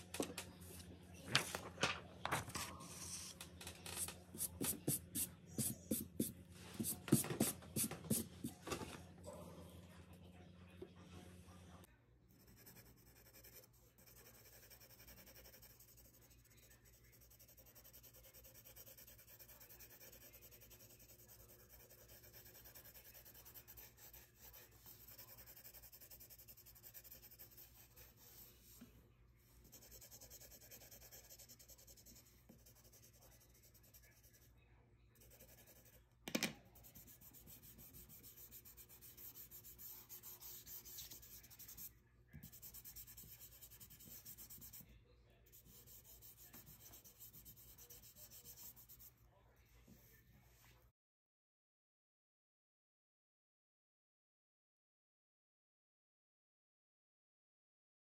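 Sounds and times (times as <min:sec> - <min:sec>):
pencil scratching on paper: 0:02.5 - 0:08.6, 0:12.3 - 0:28.9, 0:29.6 - 0:34.5, 0:35.2 - 0:36.0, 0:36.7 - 0:44.9, 0:45.5 - 0:49.1.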